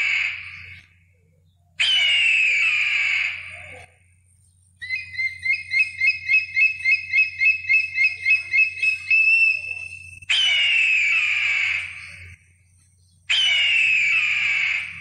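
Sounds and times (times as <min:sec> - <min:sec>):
eagle chirping: 0:00.0 - 0:15.0
eagle screech: 0:01.8 - 0:03.9, 0:04.8 - 0:12.4.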